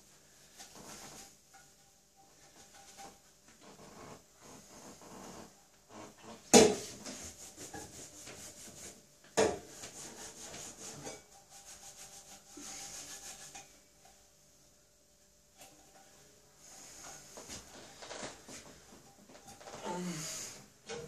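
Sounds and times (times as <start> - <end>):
cloth rubbing metal pot: 9.8 - 13.9.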